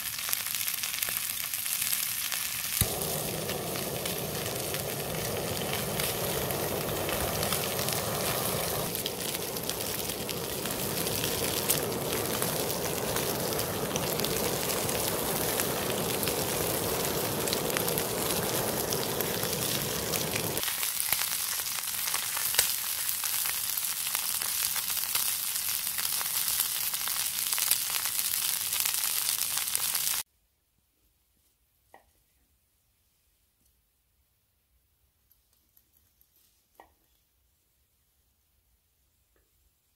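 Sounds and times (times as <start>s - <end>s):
fat sizzling and crackling: 0.0s - 30.2s
blowtorch flame: 2.8s - 20.6s.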